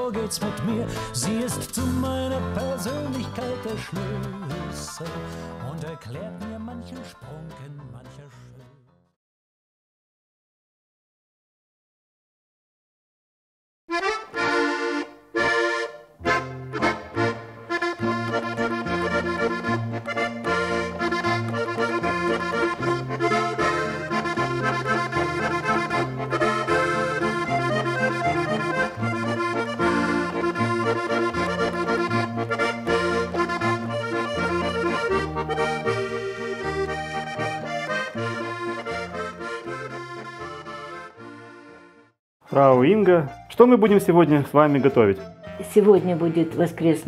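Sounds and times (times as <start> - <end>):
accordion music: 0.0 - 8.7, 13.9 - 47.0
bass stepping between notes: 13.9 - 42.1.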